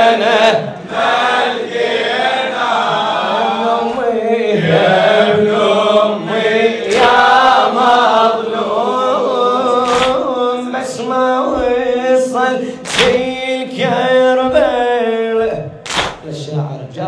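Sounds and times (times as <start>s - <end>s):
man chanting a lament: 9.0s - 17.0s.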